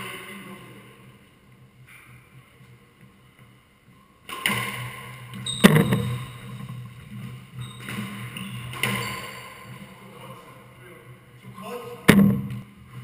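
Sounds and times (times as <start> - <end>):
squash ball hits echoing: 4.2 - 6.7, 7.8 - 9.9, 12.0 - 12.7.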